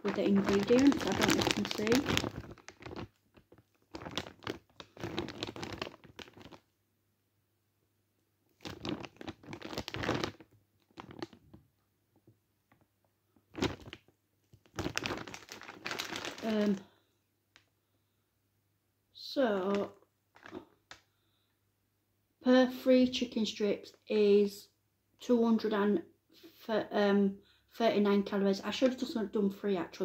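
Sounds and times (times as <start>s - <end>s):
plastic bag crinkling: 0.0s - 6.7s, 8.6s - 11.6s, 13.4s - 17.0s, 19.7s - 21.0s.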